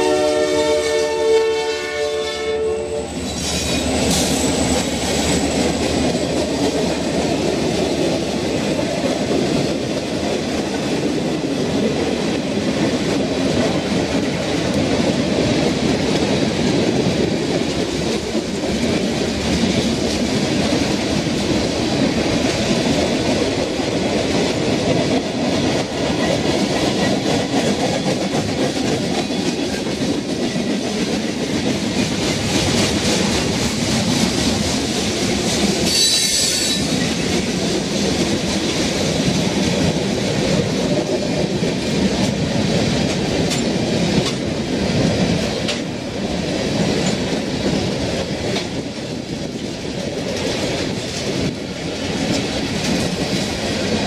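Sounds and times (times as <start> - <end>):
locomotive horn blast: 0.0 - 3.2
train wheels rolling on rails: 0.0 - 54.0.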